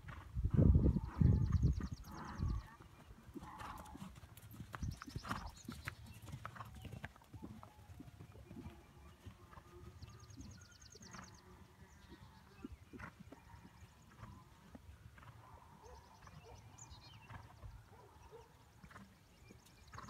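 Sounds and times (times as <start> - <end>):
hoofbeats on sand: 3.0 - 10.4.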